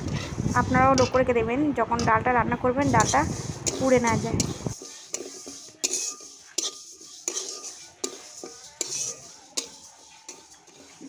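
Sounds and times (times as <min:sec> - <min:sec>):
metal spatula scraping pan: 0:00.0 - 0:01.3, 0:02.8 - 0:11.0
lentils rattling in pan: 0:02.8 - 0:11.0.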